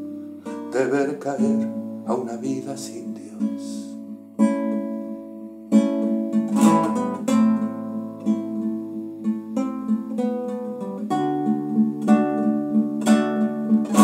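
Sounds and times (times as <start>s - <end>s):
acoustic guitar strumming chords: 0.0s - 14.0s.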